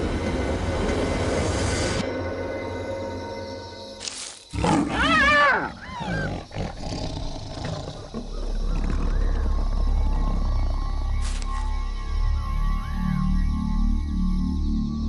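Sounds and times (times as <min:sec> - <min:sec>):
lion snarling: 0:04.5 - 0:10.4
hyena crying: 0:04.6 - 0:07.0.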